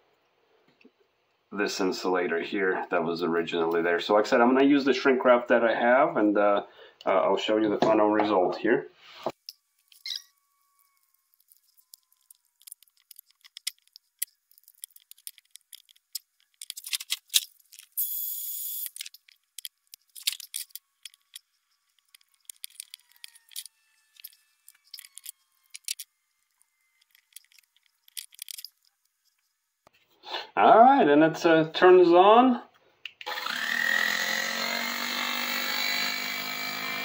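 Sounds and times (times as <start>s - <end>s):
plastic parts clicking: 11.4s - 18.0s, 18.7s - 26.1s, 26.9s - 28.9s.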